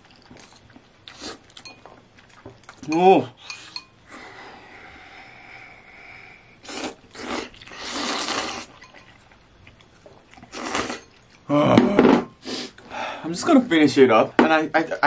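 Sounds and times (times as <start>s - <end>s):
person slurping noodles: 6.6s - 8.8s, 10.5s - 11.0s.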